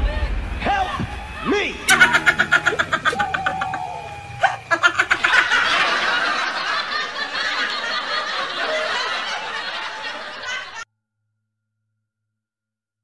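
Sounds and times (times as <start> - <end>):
laughter: 1.9 - 10.8.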